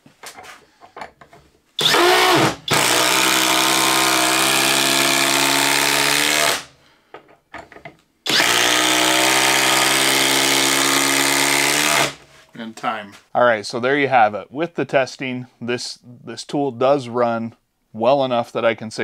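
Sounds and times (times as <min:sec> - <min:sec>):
impact driver impacting: 0:01.8 - 0:06.7, 0:07.6 - 0:12.2.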